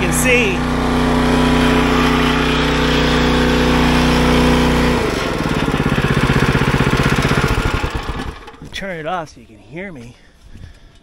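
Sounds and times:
water pump engine running: 0.0s - 8.6s.

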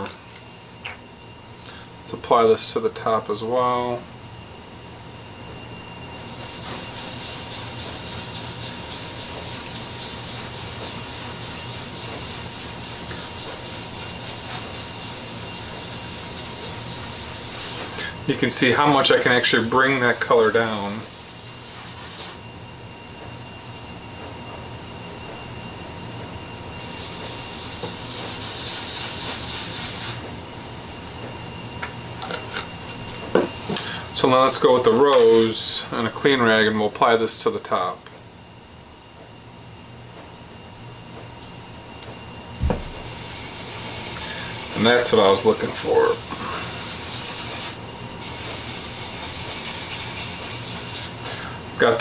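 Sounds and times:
cloth rag rubbing on wood: 6.2s - 18.0s, 18.7s - 22.4s, 26.8s - 30.2s, 42.7s - 51.3s.

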